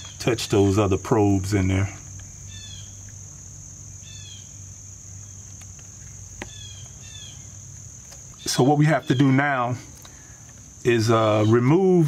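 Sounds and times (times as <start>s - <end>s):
crickets chirping chorus: 0.0s - 12.0s
faint clicks: 9.9s - 10.7s.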